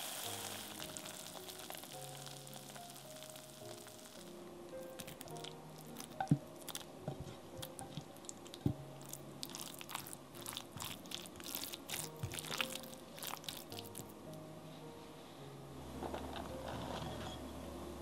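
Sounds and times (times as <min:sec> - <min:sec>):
quiet background music: 0:00.0 - 0:18.0
soft crunching and squishing: 0:05.0 - 0:14.2.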